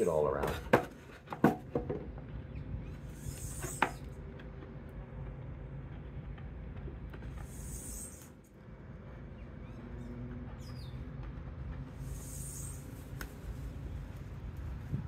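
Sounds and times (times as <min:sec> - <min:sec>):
light wooden knocks: 0:00.4 - 0:02.3
steady low rumble: 0:02.0 - 0:15.0.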